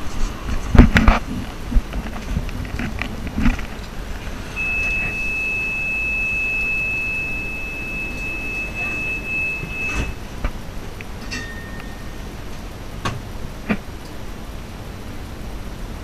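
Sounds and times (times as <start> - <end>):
tram interior rumble: 0.0 - 16.0
high electronic beep: 4.6 - 10.2.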